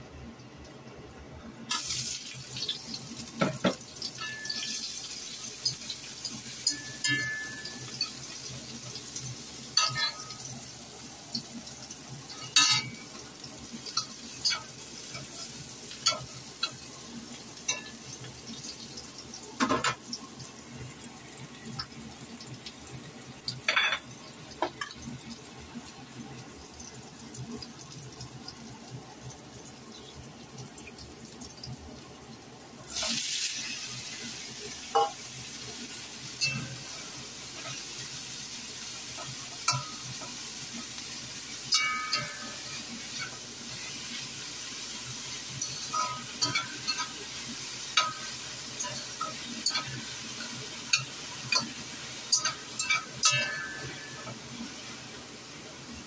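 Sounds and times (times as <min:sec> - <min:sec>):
garlic sizzling in hot oil: 0:01.7 - 0:56.0
metal spatula scraping a pan: 0:45.6 - 0:47.2.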